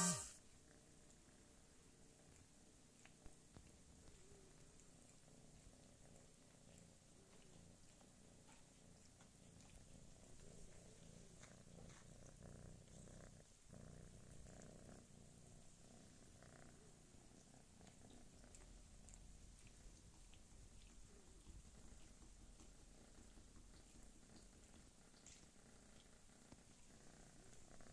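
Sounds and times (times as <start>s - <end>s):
cat purring: 0.0s - 27.9s.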